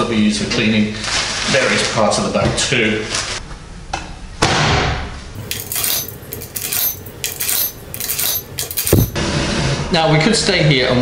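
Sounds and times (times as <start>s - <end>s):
coins clinking into slot: 5.4s - 9.2s.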